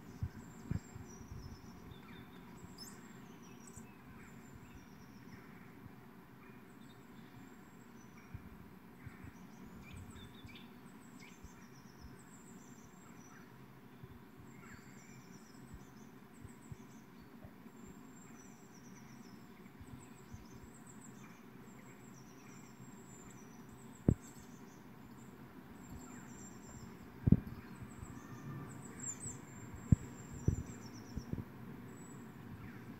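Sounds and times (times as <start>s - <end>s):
songbirds chirping: 0.0s - 32.9s.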